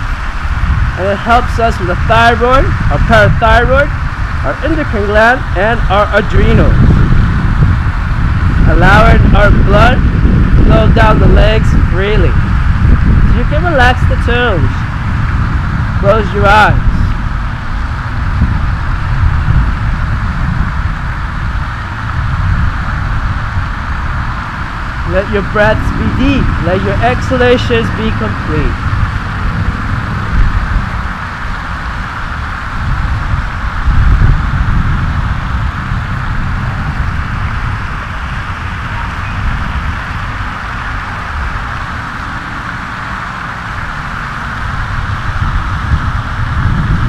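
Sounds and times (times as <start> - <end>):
low unsteady rumble: 0.0 - 47.0
wind buffeting microphone: 0.0 - 47.0
steady hiss: 11.6 - 46.9.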